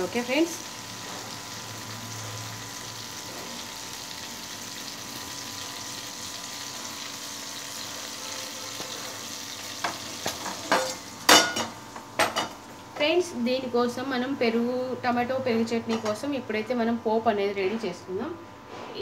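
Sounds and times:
tomatoes sizzling in hot oil: 0.0 - 13.2.

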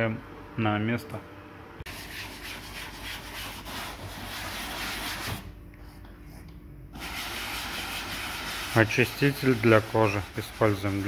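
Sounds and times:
brush scrubbing upholstery: 7.0 - 11.0.

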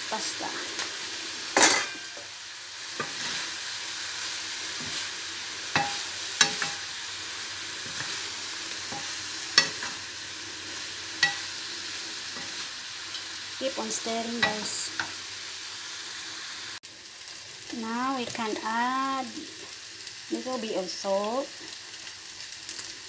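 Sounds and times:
pasta sizzling in a pan: 0.0 - 23.0
spatula knocking metal pan: 5.8 - 6.8.

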